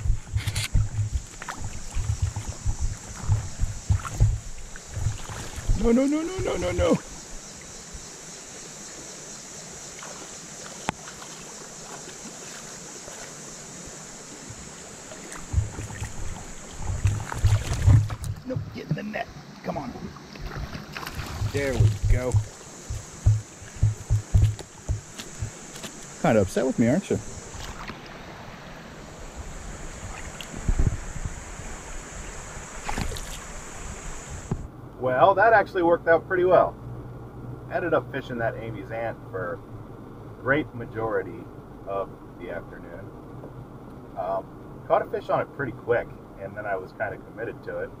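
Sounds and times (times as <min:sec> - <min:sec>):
low rumbling thumps: 0:00.0 - 0:06.9, 0:15.4 - 0:19.1, 0:20.0 - 0:27.6
creek water running over gravel: 0:00.0 - 0:35.6.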